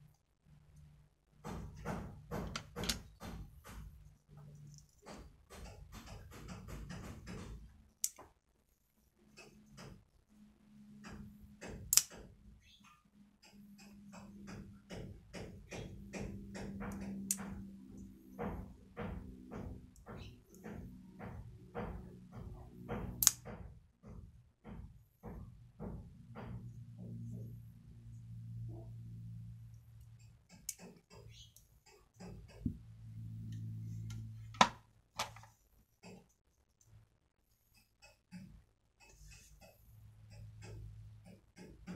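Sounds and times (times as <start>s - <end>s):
folding knife clicks: 11.9s - 12.2s, 23.2s - 23.4s
low steady hum: 26.2s - 37.8s.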